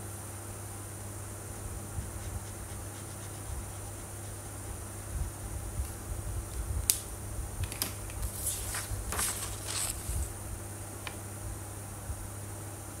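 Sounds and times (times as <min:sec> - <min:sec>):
paper rustling: 0:07.7 - 0:10.4.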